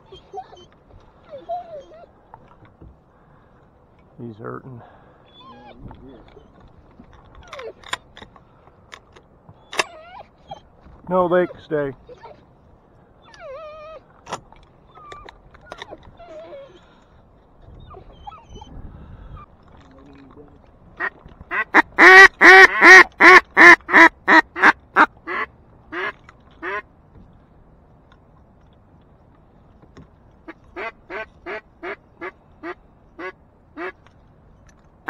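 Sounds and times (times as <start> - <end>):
duck call quacks: 21.0 - 26.8, 32.6 - 34.0.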